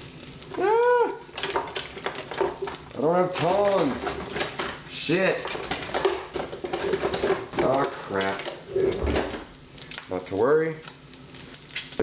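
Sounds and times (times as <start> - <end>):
food sizzling in frying pan: 0.0 - 12.0
utensils scraping pans: 1.4 - 9.5.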